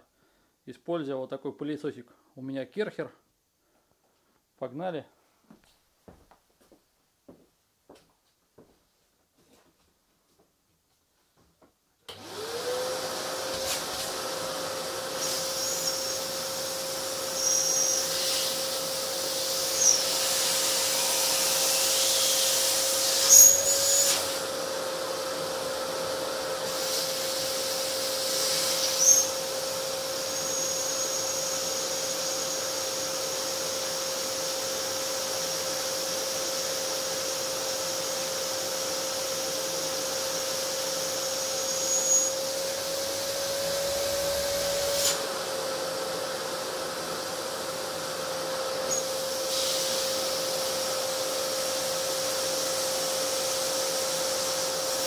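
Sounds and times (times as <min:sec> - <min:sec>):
vacuum cleaner running: 0:12.1 - 0:55.0
high whistles: 0:17.4 - 0:18.4, 0:19.7 - 0:20.2, 0:23.2 - 0:24.1, 0:28.8 - 0:29.4, 0:41.6 - 0:42.4.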